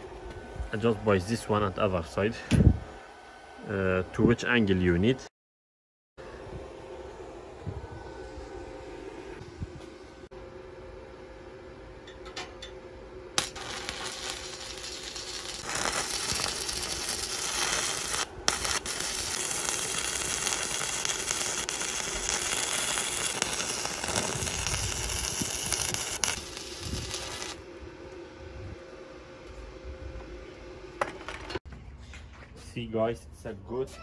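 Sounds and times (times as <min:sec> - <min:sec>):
welding arc crackling and sizzling: 0:13.3 - 0:27.7
welding arc strike click: 0:13.4 - 0:27.6.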